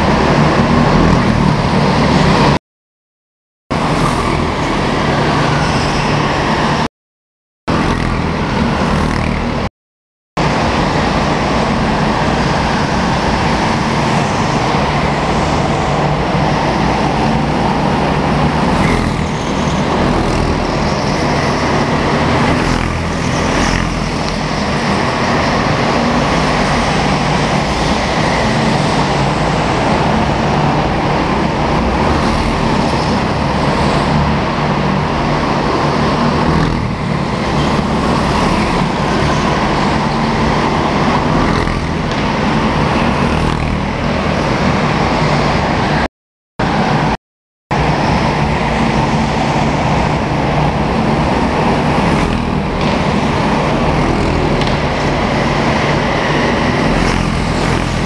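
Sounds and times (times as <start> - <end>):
kart engines running at speed: 0.0 - 2.6, 3.7 - 6.9, 7.7 - 9.7, 10.4 - 58.0.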